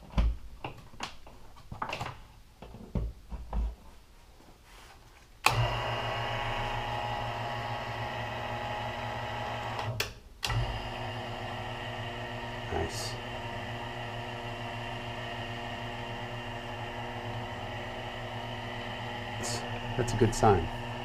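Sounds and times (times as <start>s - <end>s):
electric motor humming: 5.5s - 21.0s.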